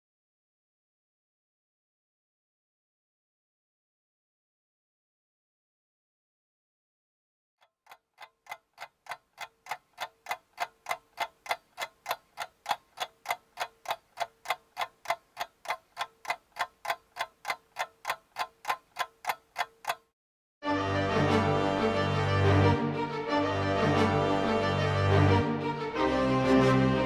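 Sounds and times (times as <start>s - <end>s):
clock ticking: 7.6s - 20.1s.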